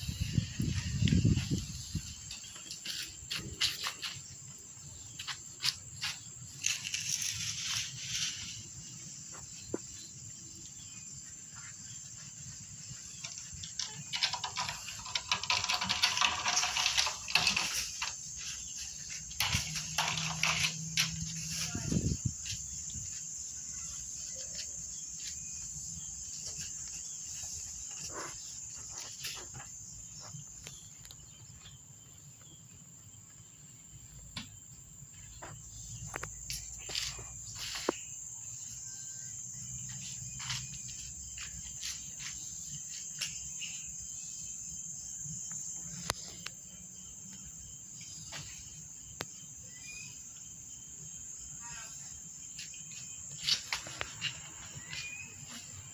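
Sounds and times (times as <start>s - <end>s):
high-pitched insect chirring: 0.0s - 31.8s.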